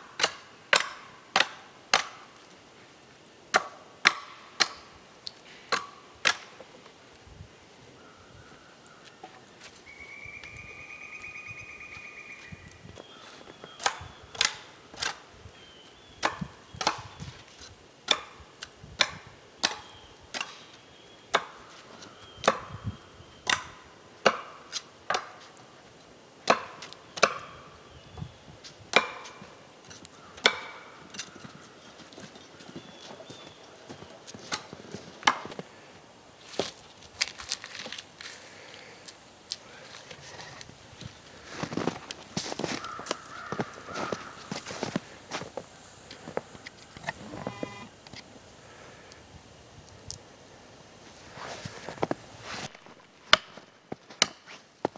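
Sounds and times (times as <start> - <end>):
axe chopping wood: 0.2 - 2.3, 3.5 - 4.9, 5.7 - 6.5, 13.8 - 15.2, 19.0 - 20.6, 21.3 - 21.6, 22.4 - 22.8, 23.5 - 25.4, 26.4 - 27.5, 28.9 - 29.4, 30.4 - 30.9, 34.5 - 35.6, 53.3 - 54.5.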